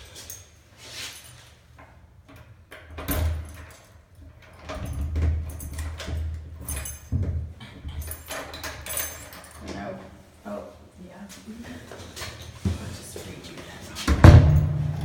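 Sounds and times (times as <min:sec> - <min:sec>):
door opening clicks and thuds: 0:14.2 - 0:15.0.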